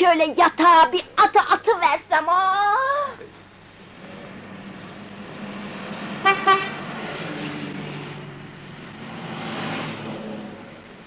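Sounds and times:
road noise: 0:03.3 - 0:11.0
bus engine running: 0:03.4 - 0:11.0
bus horn tooting: 0:06.2 - 0:06.9.

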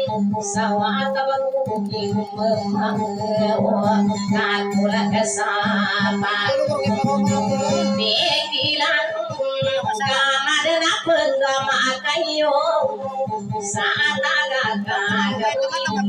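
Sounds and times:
plucked boat lute: 0:00.0 - 0:16.0
high voice singing: 0:15.1 - 0:16.0.

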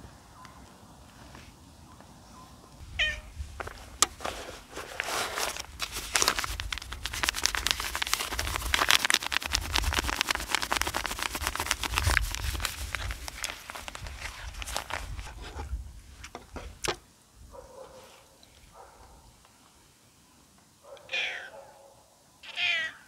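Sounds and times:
cat meowing: 0:03.0 - 0:03.3, 0:21.0 - 0:21.5, 0:22.4 - 0:23.0
plastic wrapper crinkling: 0:04.4 - 0:15.3.

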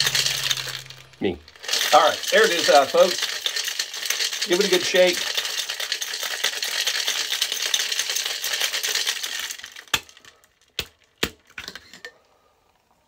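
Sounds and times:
shaker knocks and clinks: 0:00.0 - 0:09.6
ice rattling in cocktail shaker: 0:00.0 - 0:12.0.

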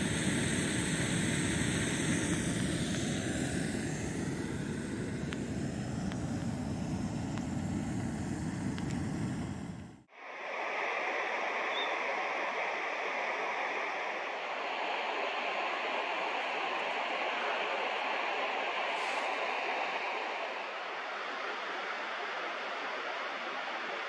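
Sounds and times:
gas stove burner rushing: 0:00.0 - 0:10.1
faint hiss: 0:00.0 - 0:24.0.

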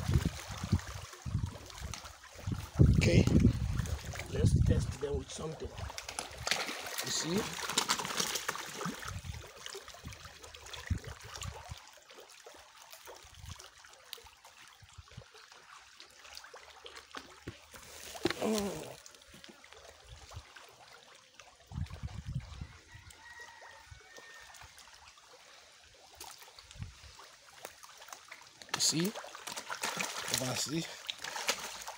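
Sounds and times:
small clicks and splashes: 0:00.0 - 0:22.0, 0:26.0 - 0:31.9
water trickling: 0:00.0 - 0:31.9
brief voice-like sound: 0:18.3 - 0:19.0.

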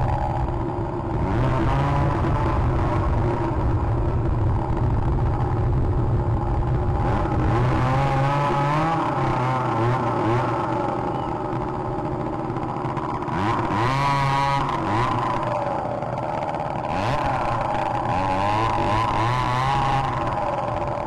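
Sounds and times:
motor engine humming: 0:00.0 - 0:21.0.

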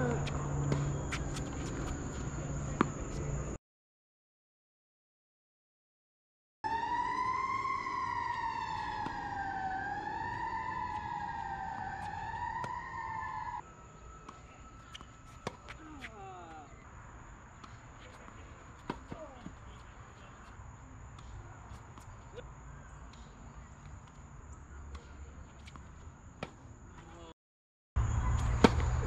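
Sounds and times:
siren wailing: 0:06.6 - 0:16.0
high insect whine: 0:06.7 - 0:17.4.

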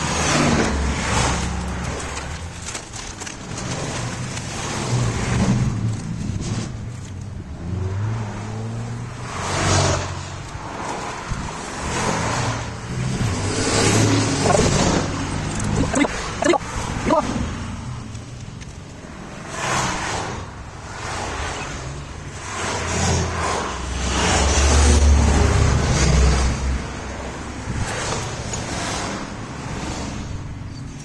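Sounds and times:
road traffic passing: 0:00.0 - 0:31.0
truck passing close: 0:07.5 - 0:18.1.

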